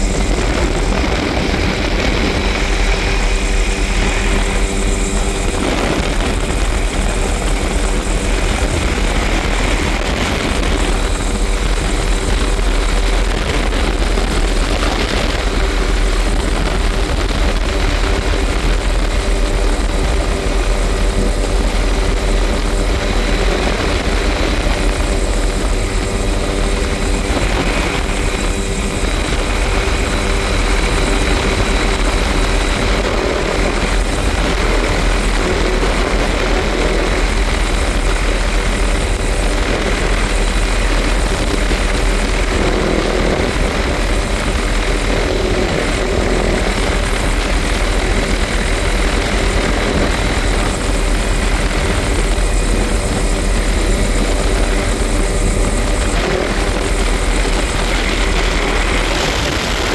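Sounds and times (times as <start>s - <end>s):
helicopter rotor and engine: 0.0s - 59.9s.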